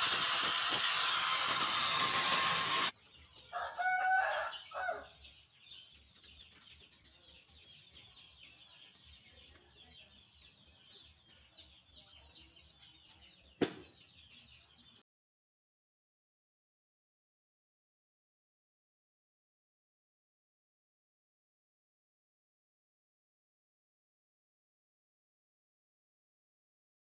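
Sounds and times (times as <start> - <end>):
angle grinder whining: 0.0 - 2.9
rooster crowing: 3.5 - 5.2.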